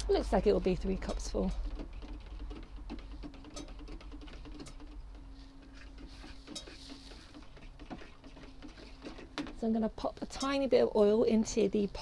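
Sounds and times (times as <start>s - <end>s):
low steady hum: 0.0s - 12.0s
spoon stirring in plastic jug: 0.9s - 9.8s.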